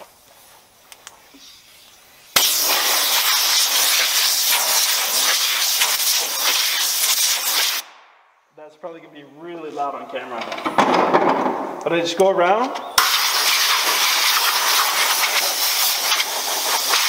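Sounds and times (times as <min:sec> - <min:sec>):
compressed air hissing: 0:00.0 - 0:07.9, 0:13.0 - 0:17.0.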